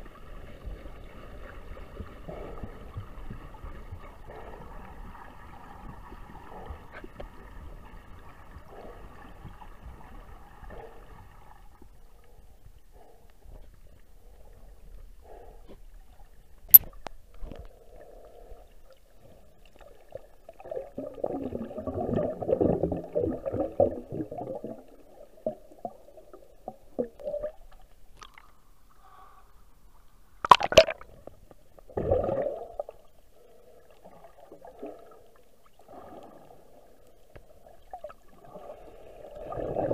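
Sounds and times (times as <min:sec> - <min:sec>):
muffled underwater water noise: 0:00.0 - 0:39.9
water gurgling: 0:19.8 - 0:28.5, 0:30.4 - 0:39.9.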